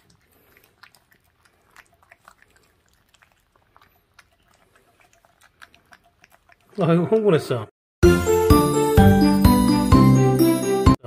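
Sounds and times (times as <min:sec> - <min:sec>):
puppy chewing smacks and clicks: 0:00.0 - 0:07.5.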